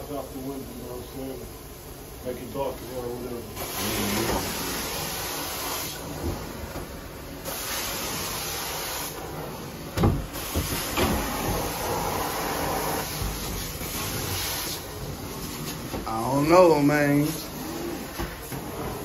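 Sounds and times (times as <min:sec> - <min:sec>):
spray hiss: 0:03.4 - 0:06.2, 0:07.4 - 0:09.6, 0:10.3 - 0:15.0
suction rush: 0:07.4 - 0:15.4.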